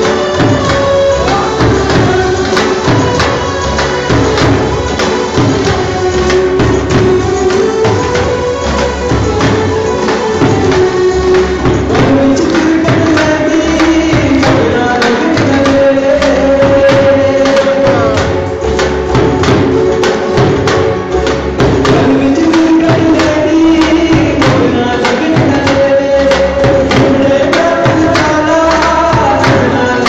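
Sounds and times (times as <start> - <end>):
dance music: 0.0 - 23.3
dhol drum beating: 0.0 - 30.0.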